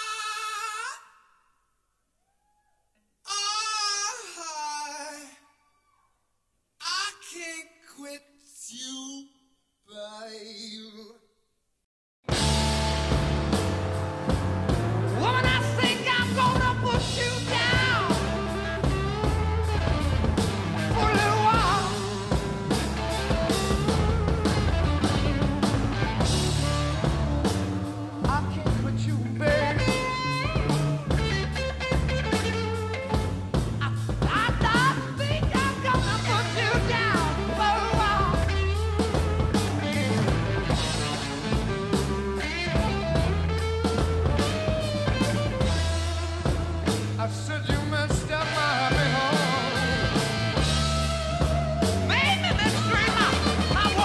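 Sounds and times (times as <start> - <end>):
person singing: 0.0 - 1.4, 3.3 - 5.6, 15.1 - 19.0, 20.8 - 22.6, 27.8 - 31.6, 33.8 - 39.2, 47.2 - 54.0
rock music with drums and bass: 12.2 - 54.0.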